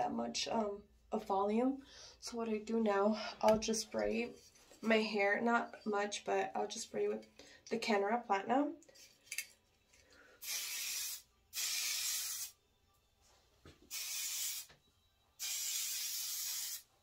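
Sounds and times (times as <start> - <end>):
aerosol hairspray hissing: 10.4 - 12.5, 13.9 - 14.7, 15.4 - 16.9.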